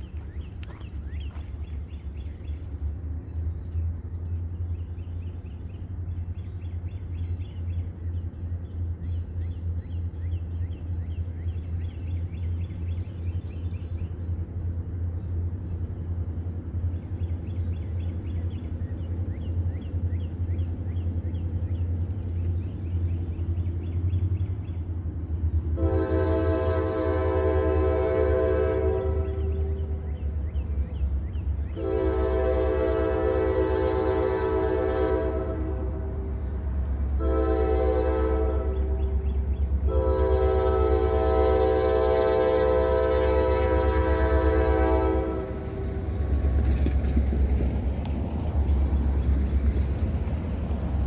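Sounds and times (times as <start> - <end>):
steady low rumble: 0.0 - 27.8
birds chirping: 0.0 - 51.0
locomotive air horn: 25.8 - 30.1, 31.7 - 36.5, 37.1 - 46.2.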